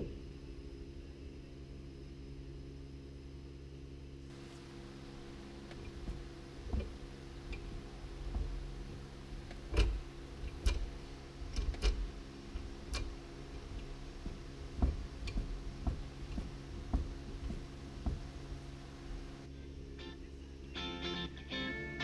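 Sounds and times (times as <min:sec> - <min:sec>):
steady low hum: 0:00.0 - 0:22.0
gear stick linkage clicking: 0:09.4 - 0:18.2.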